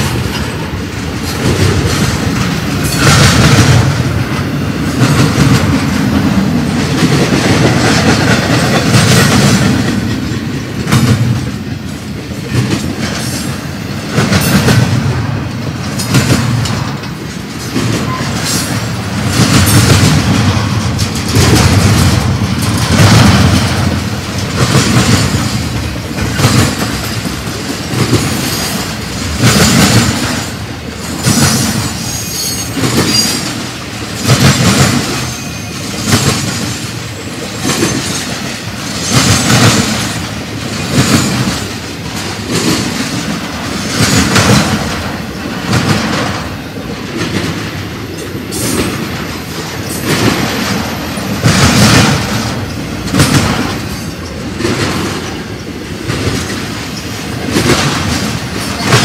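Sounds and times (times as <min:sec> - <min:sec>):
train wheels clacking over joints: 0:00.0 - 0:59.0
faint high wheel squeal: 0:32.0 - 0:33.4, 0:35.2 - 0:36.1.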